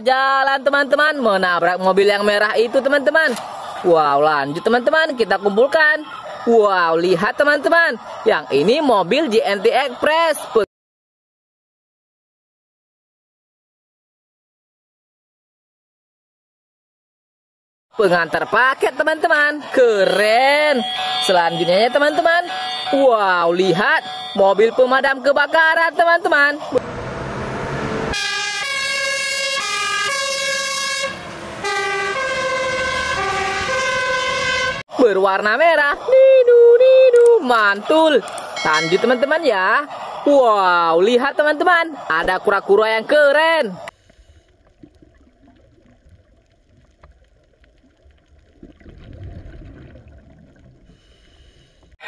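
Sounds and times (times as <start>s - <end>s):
fire engine two-tone siren: 20.1s - 25.8s, 26.8s - 34.9s, 38.6s - 39.5s
low underwater rumble: 44.0s - 51.3s.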